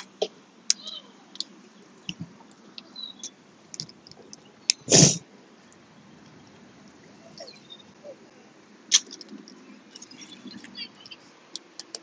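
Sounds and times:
loud rush of noise at mouth: 4.8 - 5.3.

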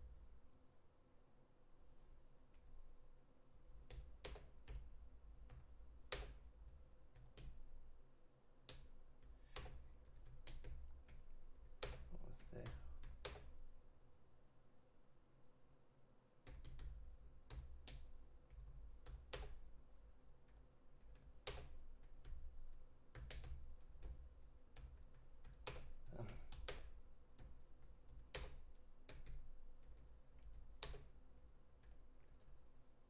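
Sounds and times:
computer keyboard typing: 3.8 - 7.7, 8.7 - 13.6, 16.4 - 19.7, 20.4 - 32.6.

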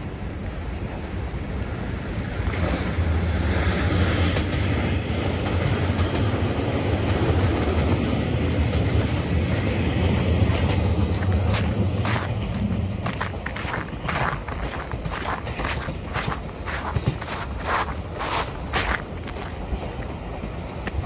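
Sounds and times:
passing vehicle rumble: 6.9 - 13.9.

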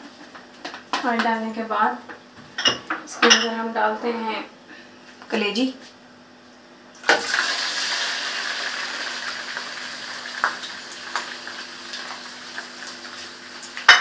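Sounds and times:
liver sizzling in hot oil: 7.0 - 14.0.

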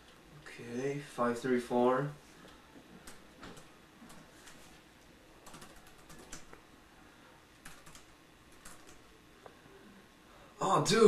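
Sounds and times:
faint laptop keyboard typing: 2.4 - 6.7, 7.5 - 9.6.

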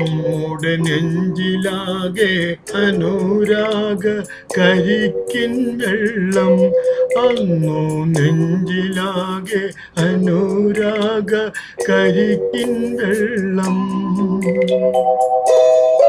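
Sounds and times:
man singing: 0.0 - 14.8
karaoke backing track: 0.0 - 16.0.

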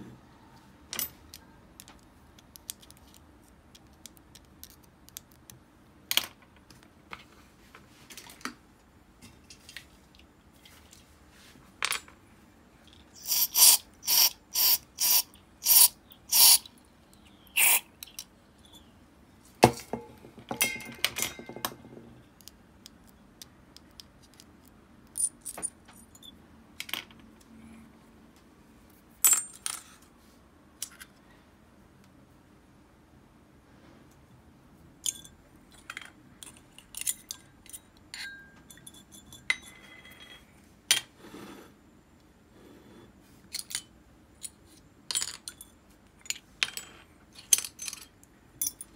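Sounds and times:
small metal parts clinking on glass: 35.0 - 40.4, 43.5 - 48.9.

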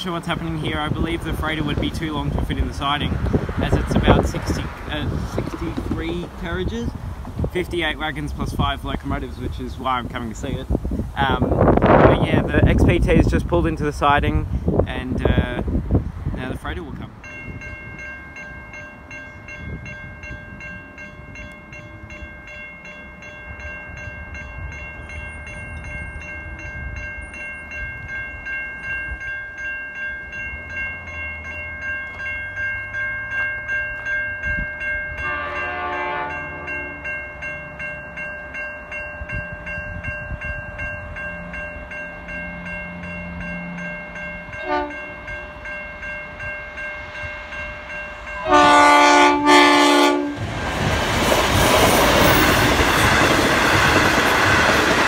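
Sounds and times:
diesel locomotive rumble: 0.0 - 55.0
level crossing bells ringing: 17.0 - 50.3
locomotive horn: 35.2 - 37.1, 43.6 - 45.3, 48.2 - 50.4.

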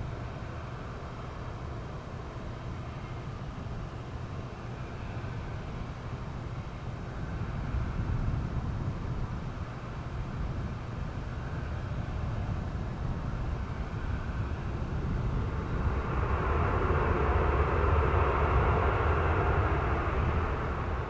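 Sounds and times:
jet engines rumbling: 9.2 - 21.0.

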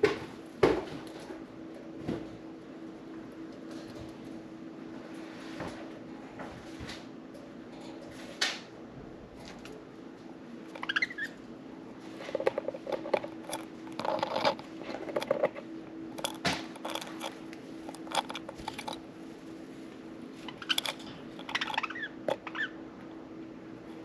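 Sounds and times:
faint steady hum: 0.0 - 24.0
beaks nibbling and scratching: 9.4 - 22.8.

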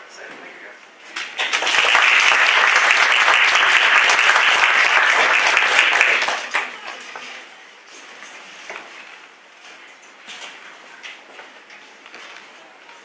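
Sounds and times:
audience applauding: 1.2 - 7.0.

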